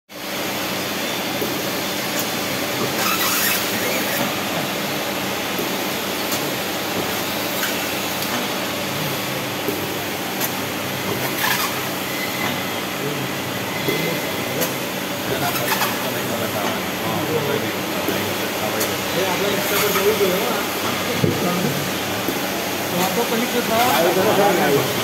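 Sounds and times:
cheese cutting machine running: 2.2 - 25.0
pneumatic hisses: 3.0 - 4.4.

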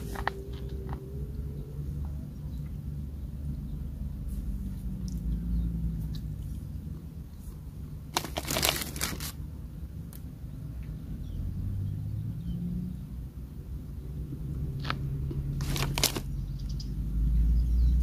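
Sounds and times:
plastic bag crinkling: 8.1 - 9.4, 15.6 - 16.4.

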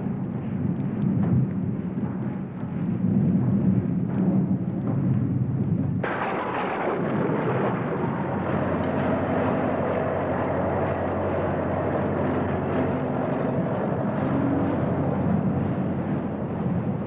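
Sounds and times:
heavy truck engine running: 6.0 - 17.0.

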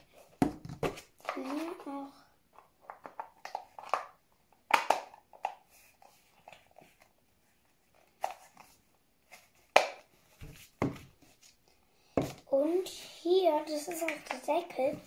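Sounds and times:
plastic ball halves clicking: 2.8 - 5.6
sharp plastic snaps: 2.9 - 5.6.

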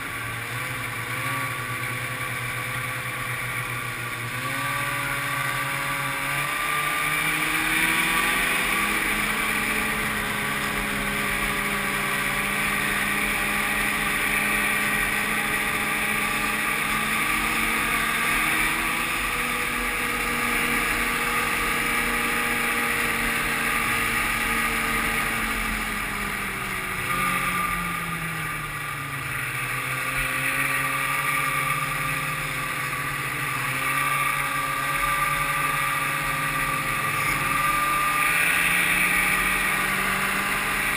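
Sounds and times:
snowmobile engine running: 0.0 - 40.9.

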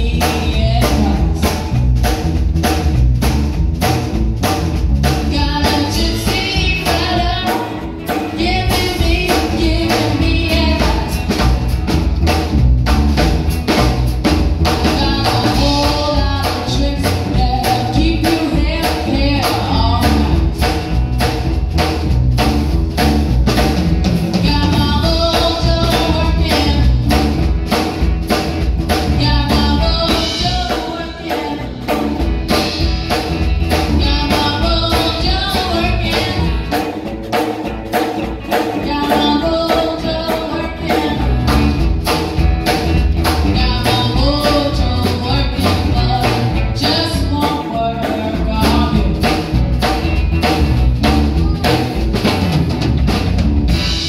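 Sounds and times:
woman singing: 0.0 - 2.0, 5.2 - 11.6, 14.7 - 20.8, 24.3 - 27.3, 28.9 - 32.4, 33.7 - 37.0, 38.5 - 41.9, 43.3 - 49.6, 51.0 - 52.0
drum kit beat: 0.0 - 54.0
electric bass: 0.0 - 54.0
electric guitar: 0.0 - 54.0.

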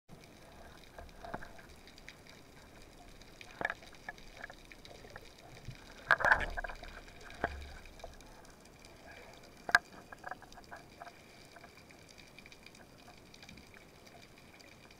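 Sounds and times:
underwater crackling hiss: 0.3 - 14.9
underwater clicks and knocks: 0.6 - 11.8.

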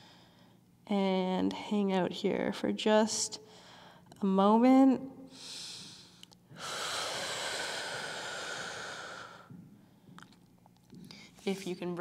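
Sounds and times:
woman breathing deeply: 0.0 - 0.6, 3.4 - 4.1, 5.3 - 10.2.

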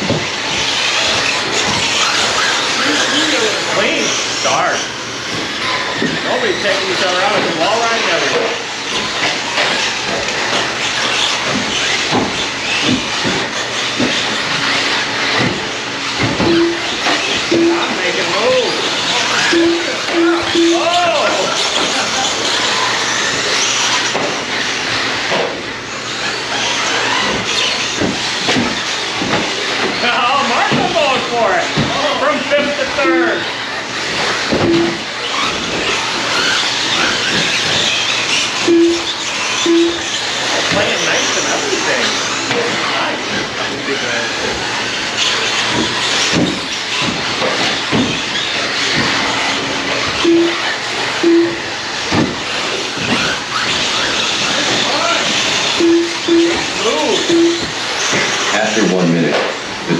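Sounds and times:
rc trucks motors and tyres hissing: 0.0 - 20.1, 20.7 - 59.9
short beeps: 16.4 - 16.9, 17.5 - 18.0, 19.5 - 21.0, 34.6 - 35.1, 38.6 - 40.1, 50.2 - 50.6, 51.2 - 51.6, 55.8 - 57.7
dull knocks: 51.4 - 53.3.

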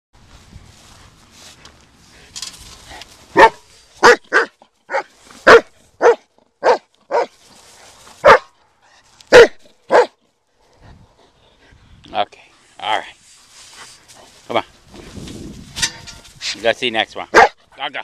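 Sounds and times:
dog barking: 3.4 - 7.3, 8.2 - 8.5, 9.3 - 10.2, 17.3 - 17.6
faint rustling: 7.3 - 9.3, 12.5 - 16.8.

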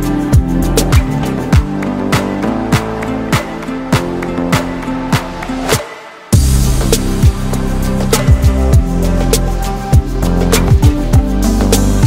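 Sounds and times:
electronic music with steady beat: 0.0 - 12.0.

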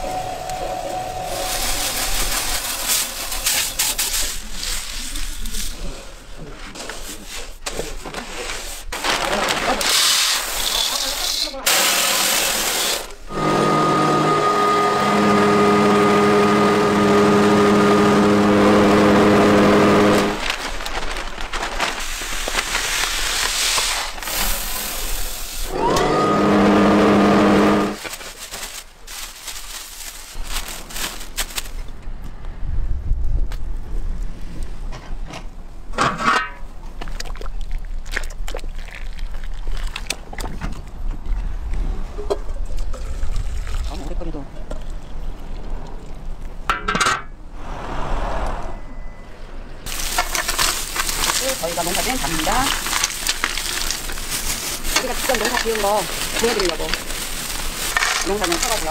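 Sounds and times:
rushing noise: 0.0 - 4.0, 47.4 - 51.3
machine motor humming: 13.3 - 20.4
liquid pouring and splashing: 37.0 - 40.6
low rumble: 47.4 - 49.9.

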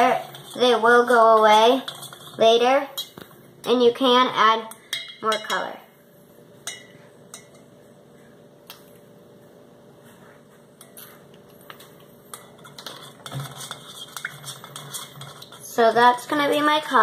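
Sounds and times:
utensil scraping metal bowl: 0.0 - 3.2, 12.3 - 17.0.

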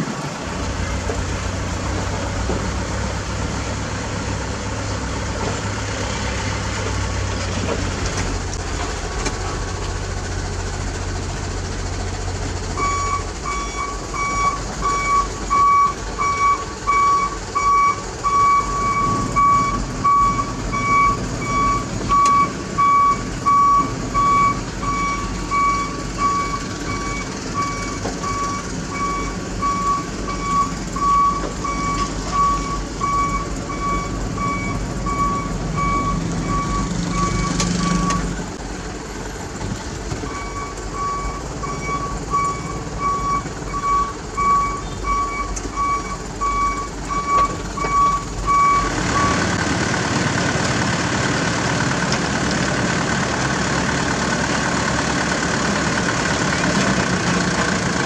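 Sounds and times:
diesel engine running: 0.0 - 58.0
reversing alarm beeps: 12.8 - 38.3, 40.2 - 49.4.

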